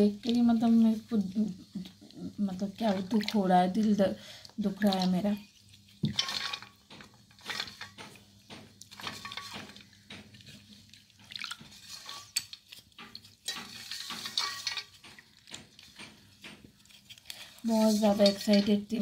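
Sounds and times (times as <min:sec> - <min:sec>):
water splashing and dripping: 0:02.5 - 0:16.6.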